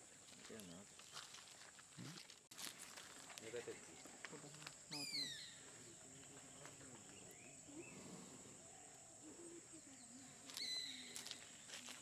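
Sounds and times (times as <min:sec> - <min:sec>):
faint chirps: 0:04.9 - 0:12.0.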